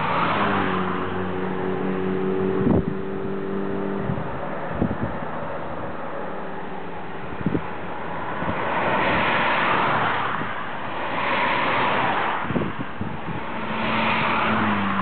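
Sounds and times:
car passing by: 0.0 - 15.0
wind buffeting microphone: 2.2 - 6.0, 7.2 - 10.6, 11.9 - 15.0.

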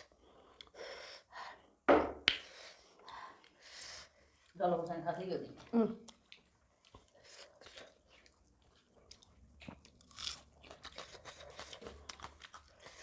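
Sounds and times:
people chewing crunchy food: 0.0 - 0.9, 5.5 - 13.0.

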